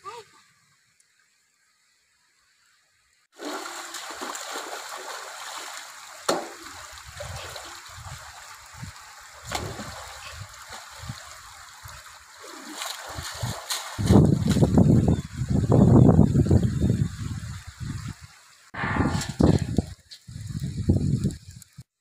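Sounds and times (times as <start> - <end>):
stream running over stones: 3.3 - 18.7
feet wading through water: 3.4 - 8.3, 12.2 - 14.1
sharp water splashes: 3.4 - 11.3, 12.2 - 14.7.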